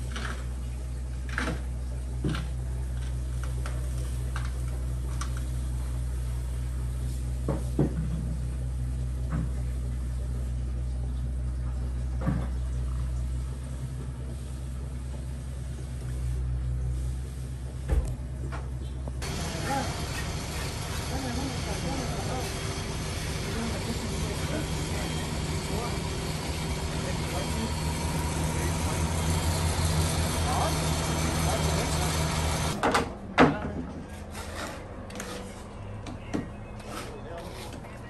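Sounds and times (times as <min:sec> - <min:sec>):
low machine drone: 0:08.2 - 0:38.0.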